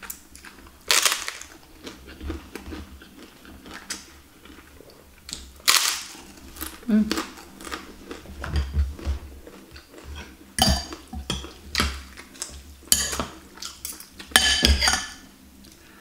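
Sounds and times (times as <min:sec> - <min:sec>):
cutlery clinking on glass bowl: 0:10.6 - 0:11.9, 0:12.9 - 0:13.3, 0:14.4 - 0:15.2.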